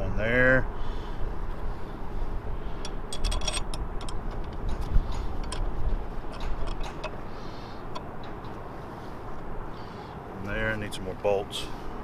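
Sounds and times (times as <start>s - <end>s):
metal bolts and nuts clinking: 2.8s - 8.6s.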